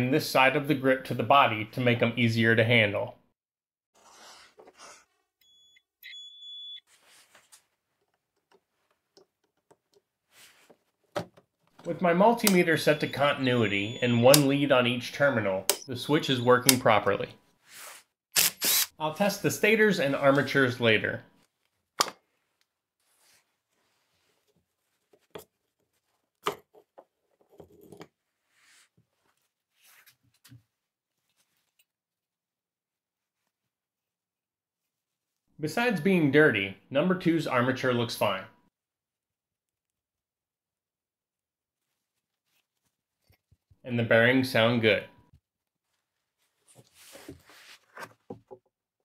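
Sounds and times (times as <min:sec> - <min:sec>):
multimeter beeps: 0:05.4 - 0:06.8, 0:12.4 - 0:14.6.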